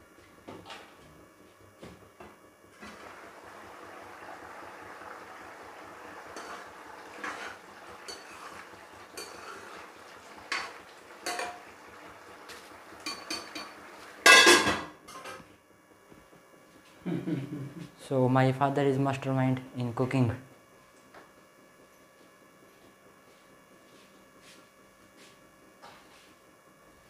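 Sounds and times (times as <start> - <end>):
pots and utensils clattering: 6.3 - 11.7, 13.0 - 15.4
metal ladle scraping a pan: 6.4 - 8.6, 9.2 - 9.8.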